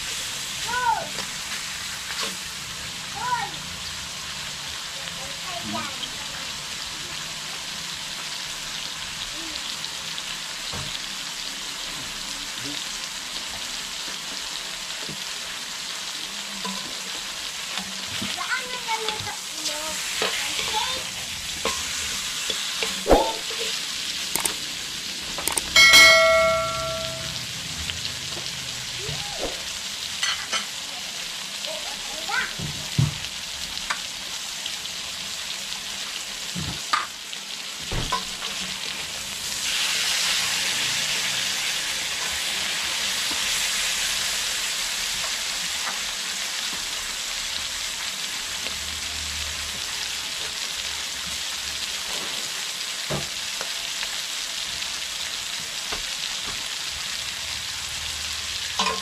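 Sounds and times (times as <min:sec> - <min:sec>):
food sizzling in frying pan: 0:00.0 - 0:59.0
metal clang: 0:23.0 - 0:23.6, 0:25.5 - 0:27.3, 0:58.8 - 0:59.0.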